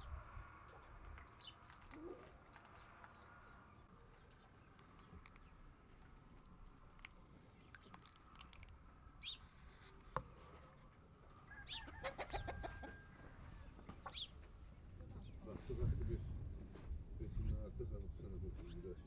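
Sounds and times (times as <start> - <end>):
birds chirping: 0.0 - 9.9, 11.5 - 16.8
chickens clucking: 11.6 - 14.3.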